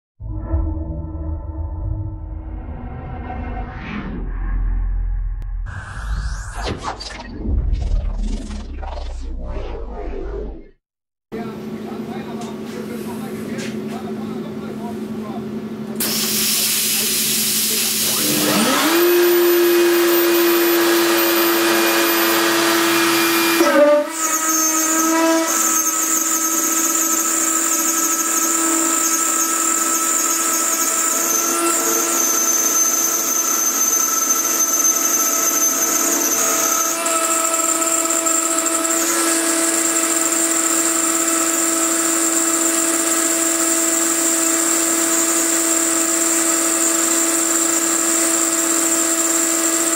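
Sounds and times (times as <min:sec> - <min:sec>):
spindle high whine: 0:00.2 - 0:10.8
coolant spray hiss: 0:16.0 - 0:18.2
end mill cutting metal: 0:16.0 - 0:49.9.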